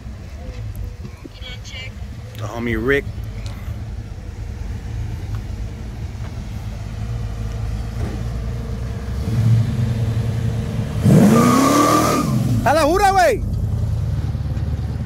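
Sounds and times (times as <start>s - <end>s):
car engine rumbling: 0.0s - 15.0s.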